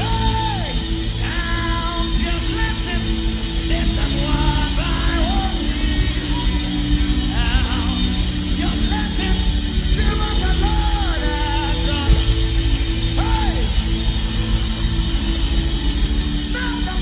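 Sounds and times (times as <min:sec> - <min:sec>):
live worship band playing: 0:00.0 - 0:17.0.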